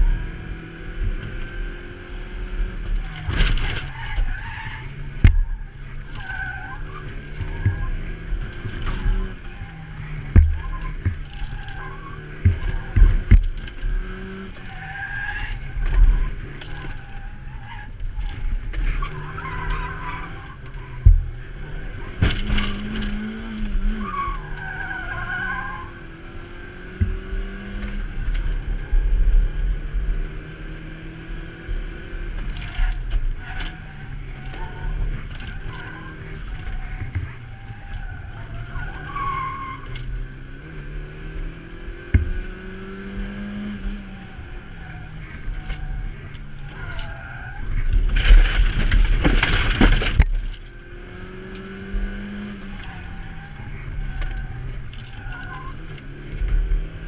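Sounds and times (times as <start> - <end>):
car engine revving: 0.0 - 57.0
tyres squealing: 3.2 - 13.0, 14.1 - 26.0, 32.7 - 40.2, 42.8 - 50.2, 51.1 - 56.2.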